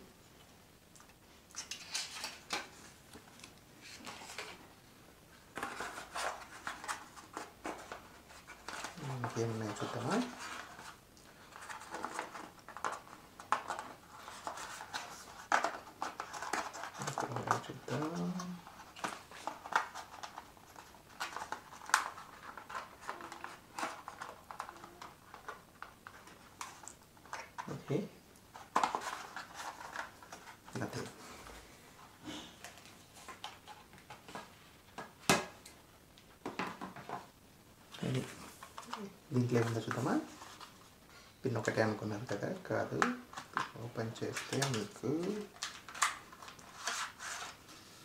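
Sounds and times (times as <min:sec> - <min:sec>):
cardboard and plastic rustling: 0:01.5 - 0:04.7, 0:05.3 - 0:35.6, 0:37.9 - 0:48.0.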